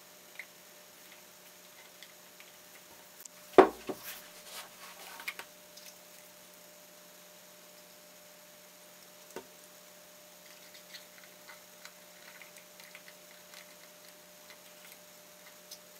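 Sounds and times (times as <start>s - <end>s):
faint steady hum: 0.0s - 15.9s
knock on wooden table: 3.6s - 4.0s.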